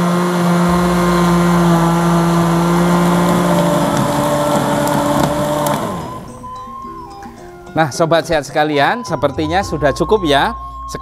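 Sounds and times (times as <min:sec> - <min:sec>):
blender motor running: 0:00.0 - 0:06.4.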